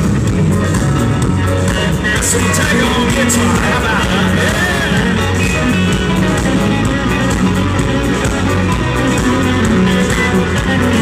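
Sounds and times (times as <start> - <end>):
electric guitars: 0.0 - 11.0
rock band playing live: 0.0 - 11.0.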